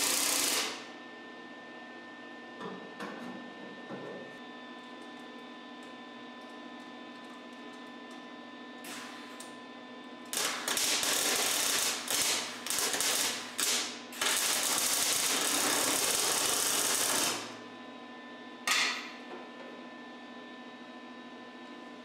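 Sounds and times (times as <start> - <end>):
welder arc crackling: 0.0 - 0.9, 10.3 - 17.6.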